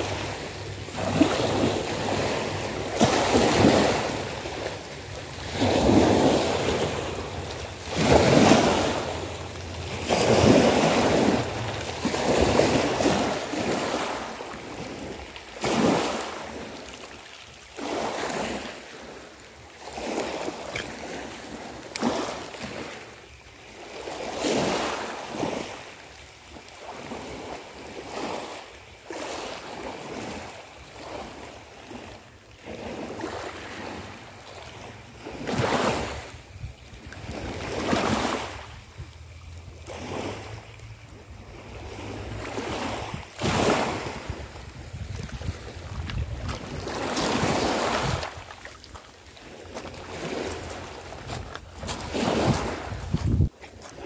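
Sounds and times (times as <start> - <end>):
wind noise on microphone: 0.0 - 16.7, 35.2 - 40.5, 41.1 - 48.7, 49.6 - 54.0
waves washing over pebble beach: 0.0 - 54.0.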